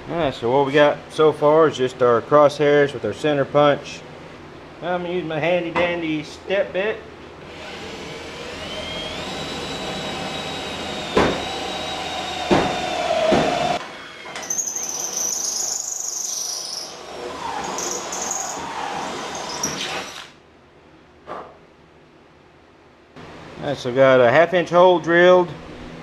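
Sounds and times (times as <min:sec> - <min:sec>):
cordless drill motor whine: 0:07.5 - 0:20.3
drill bit squealing through metal: 0:11.4 - 0:20.3.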